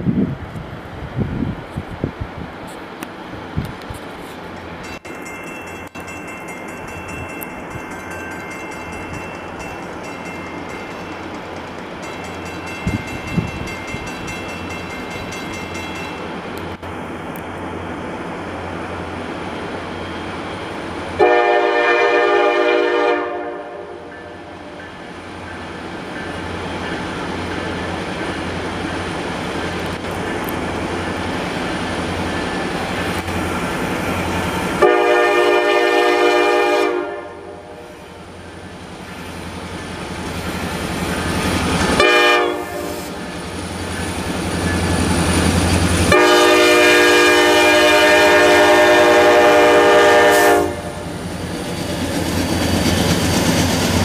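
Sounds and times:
diesel locomotives running: 0:00.0 - 0:54.0
train air horn blast: 0:21.2 - 0:24.4, 0:34.8 - 0:38.0, 0:42.0 - 0:43.2, 0:46.1 - 0:51.0.

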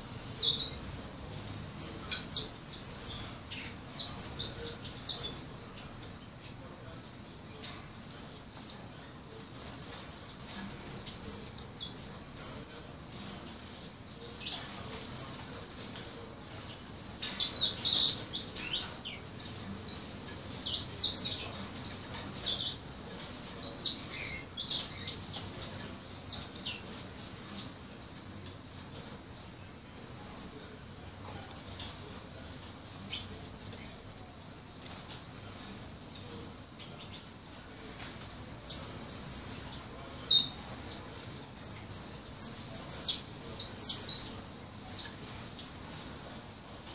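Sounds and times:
songbird chirping and twittering: 0:00.0 - 0:06.8, 0:07.4 - 0:46.9.

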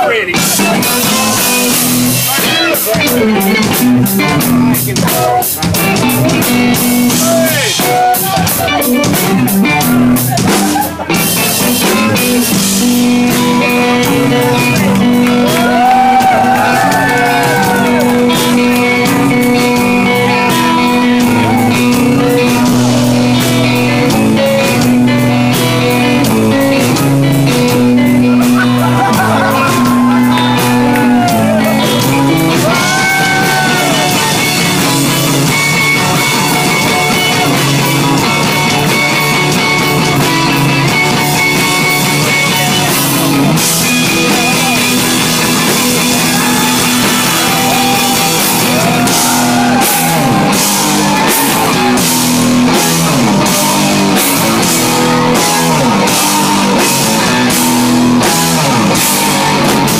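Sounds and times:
drum kit: 0:00.0 - 0:59.9
loud electric guitar: 0:00.0 - 0:59.9.

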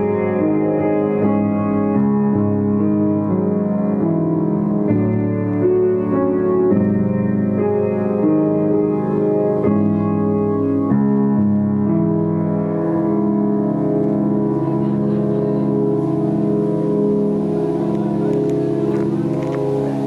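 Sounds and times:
keyboard playing organ-like chords: 0:00.0 - 0:20.0.

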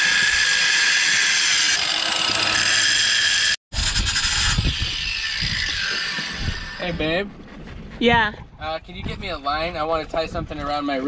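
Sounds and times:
angle grinder whining: 0:00.0 - 0:07.0.

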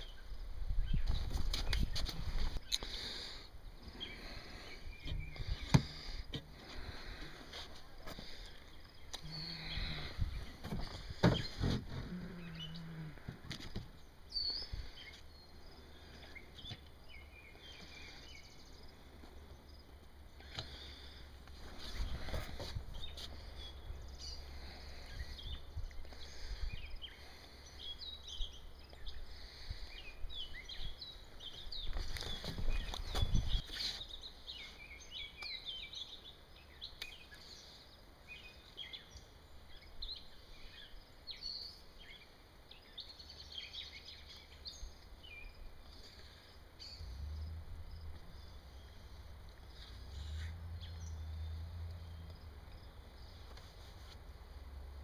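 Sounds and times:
birds chirping and singing: 0:00.0 - 0:53.6
low rumble: 0:47.0 - 0:52.9.

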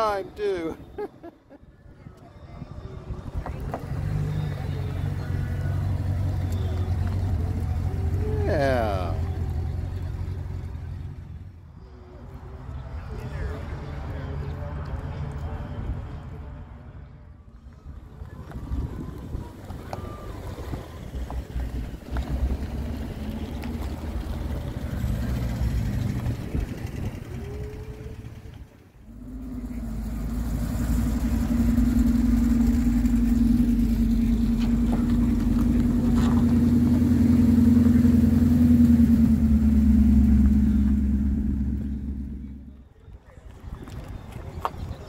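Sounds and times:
cars rolling by slowly: 0:00.0 - 0:45.0
loud car engine drone passing: 0:02.6 - 0:17.4, 0:18.2 - 0:42.9.

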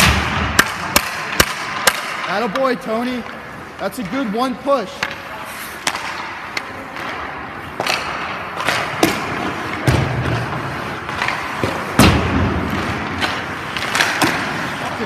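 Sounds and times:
skates scraping ice: 0:00.0 - 0:15.0.

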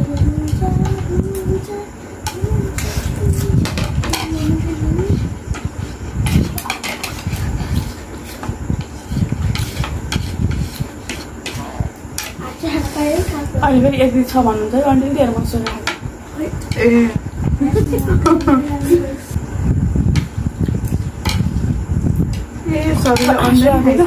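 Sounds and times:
wavering hum: 0:00.0 - 0:24.0
low rumble: 0:16.5 - 0:23.2.

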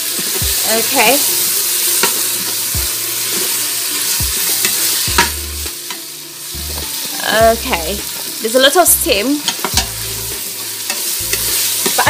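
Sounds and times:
meat sizzling in a pot: 0:00.0 - 0:12.0
spatula scraping metal pot: 0:09.4 - 0:12.0.

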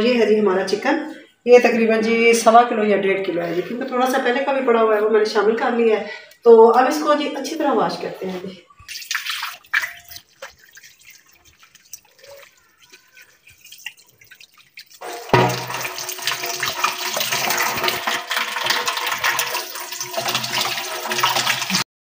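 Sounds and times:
soft splashing: 0:08.8 - 0:18.1
tap water running into sink: 0:08.9 - 0:21.9.

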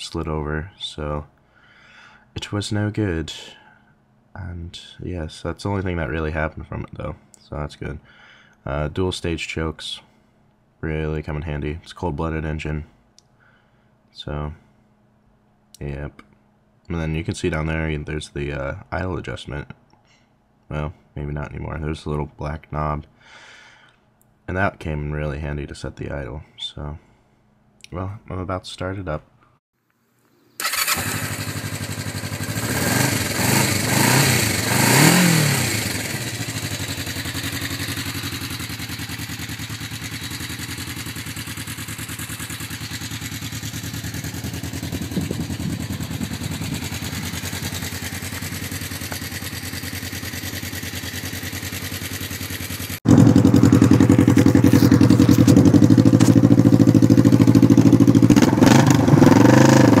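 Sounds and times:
motorcycle engine revving and idling: 0:30.7 - 1:00.0
loud straight-piped exhaust idle: 0:31.4 - 1:00.0.

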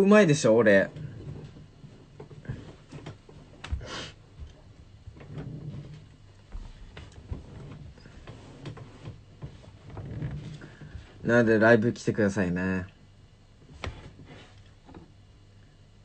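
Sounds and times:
faint clicks and knocks: 0:00.9 - 0:11.2.

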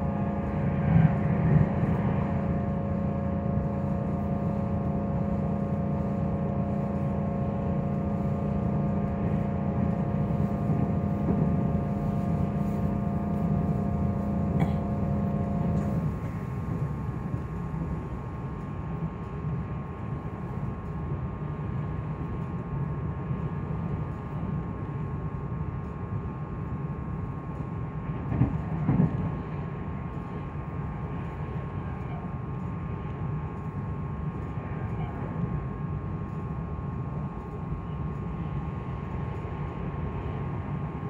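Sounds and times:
electric motor whine: 0:00.0 - 0:16.3
wheels rumbling on rail: 0:00.0 - 0:41.0.

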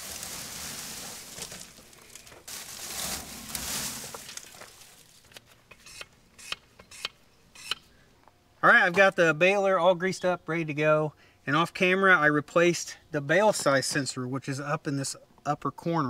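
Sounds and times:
dry grass rustling: 0:00.0 - 0:05.6.

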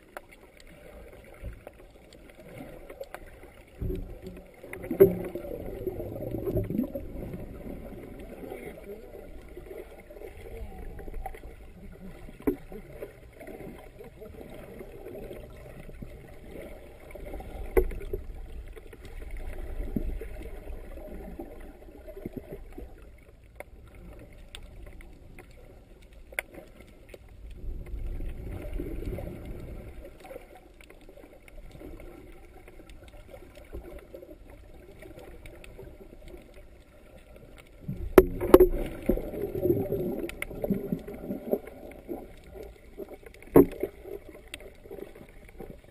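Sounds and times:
muffled underwater sloshing: 0:00.0 - 0:45.9.

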